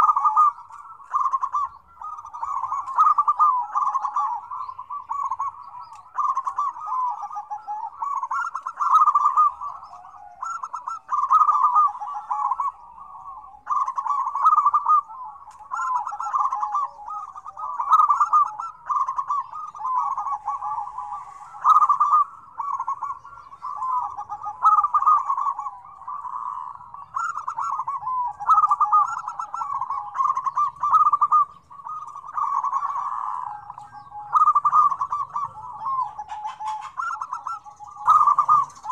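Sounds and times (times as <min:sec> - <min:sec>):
doves cooing: 0:00.0 - 0:38.9.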